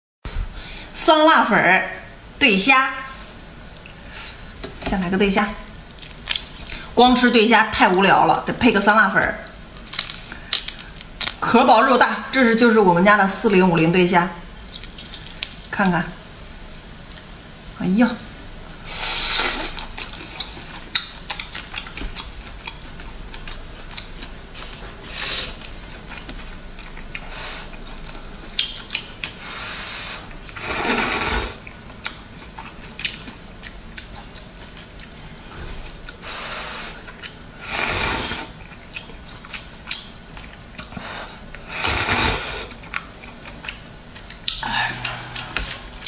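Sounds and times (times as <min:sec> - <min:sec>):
chewing with wet mouth clicks: 0:05.8 - 0:06.9, 0:09.4 - 0:11.4, 0:19.8 - 0:24.8, 0:25.6 - 0:29.4, 0:31.6 - 0:36.2, 0:37.0 - 0:37.5, 0:38.6 - 0:41.6, 0:42.7 - 0:46.0
slurping noodles: 0:30.0 - 0:31.6, 0:37.6 - 0:38.6, 0:41.7 - 0:42.7.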